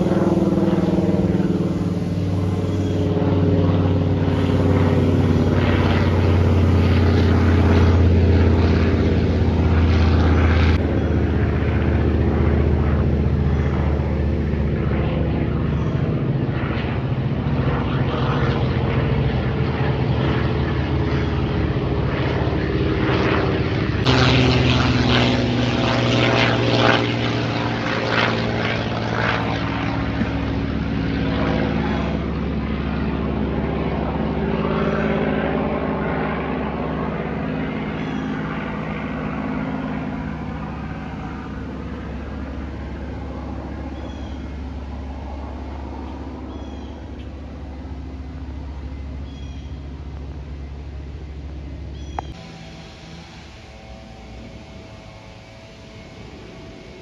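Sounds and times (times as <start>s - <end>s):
propeller plane engine drone: 0.0s - 57.0s.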